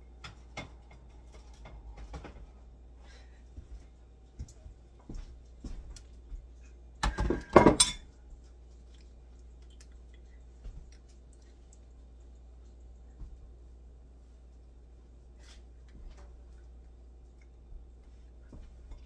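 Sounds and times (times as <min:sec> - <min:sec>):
plate and cutlery clattering: 0:07.0 - 0:08.1.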